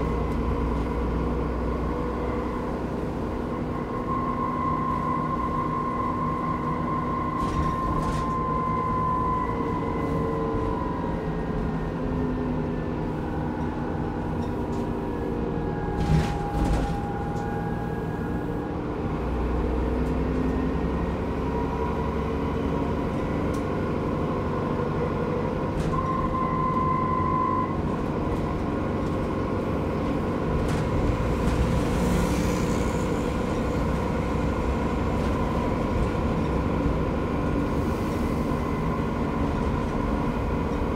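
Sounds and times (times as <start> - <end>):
bus diesel engine running: 0.0 - 40.9
road rumble: 0.0 - 40.9.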